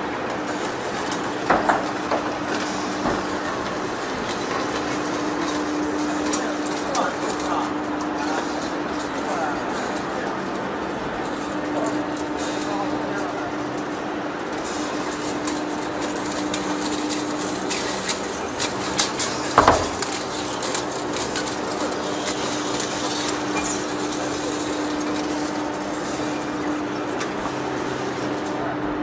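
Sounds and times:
lathe machine hum: 0.0 - 29.0.

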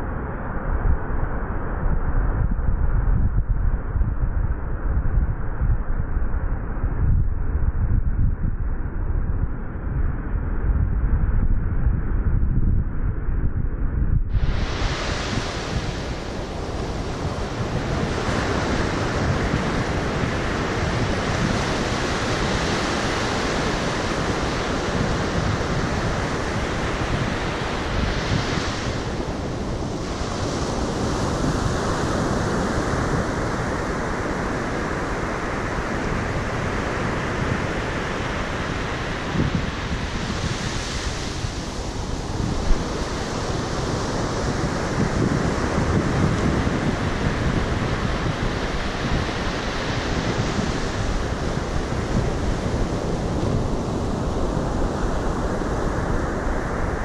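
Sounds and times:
wind buffeting microphone: 0.0 - 57.0
ocean surf breaking: 14.4 - 57.0.

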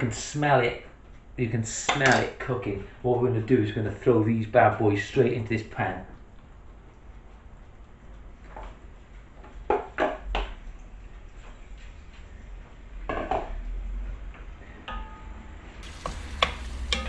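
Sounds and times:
wooden spatula knocking and scraping: 15.8 - 17.0.

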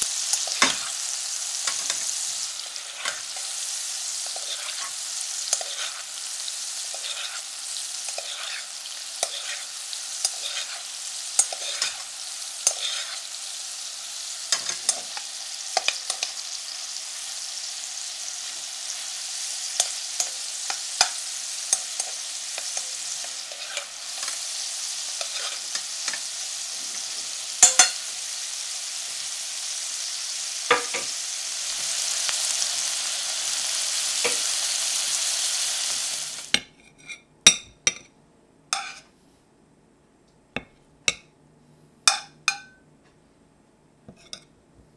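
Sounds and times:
meat sizzling in a frying pan: 0.0 - 36.6
metal spoon scraping a pan: 1.6 - 13.4, 14.1 - 16.4, 18.9 - 28.1, 38.8 - 39.1.

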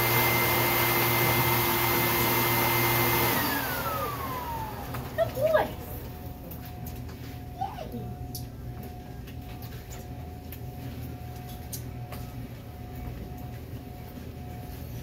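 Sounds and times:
low mechanical hum: 3.3 - 15.0.

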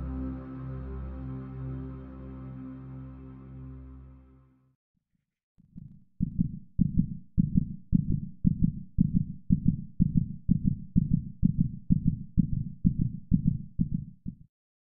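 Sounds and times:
heartbeat-like thudding pulse: 5.8 - 14.5.

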